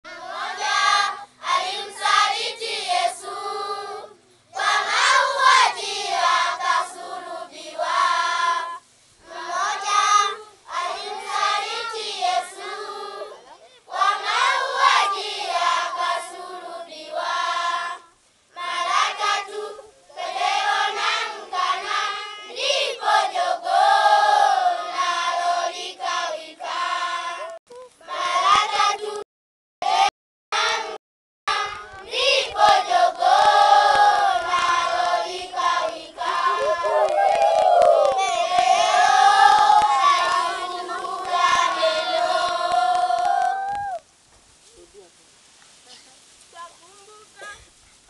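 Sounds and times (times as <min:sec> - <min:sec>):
children singing together: 0:00.1 - 0:18.0, 0:31.6 - 0:37.2, 0:38.2 - 0:43.2.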